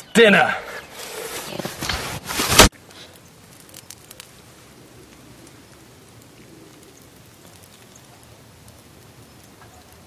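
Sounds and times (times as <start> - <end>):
campfire crackling with pops: 2.3 - 10.0.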